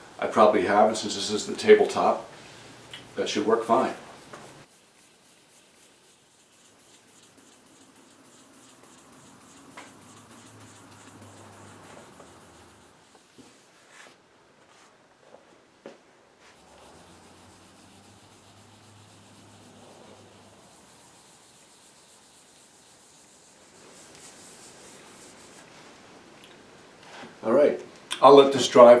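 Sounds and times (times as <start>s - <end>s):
cloth rubbing on tabletop: 3.2s - 14.9s, 16.4s - 26.0s.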